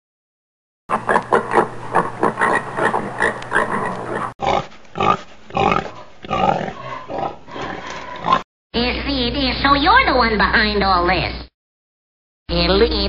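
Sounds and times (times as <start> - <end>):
pigs grunting and oinking: 0.9 - 8.4.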